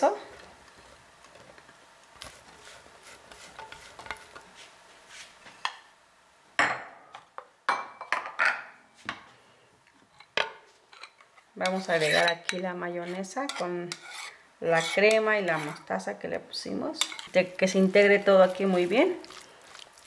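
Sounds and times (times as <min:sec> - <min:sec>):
spatula scraping a plate: 0:02.3 - 0:04.4, 0:11.7 - 0:12.4, 0:13.0 - 0:15.8.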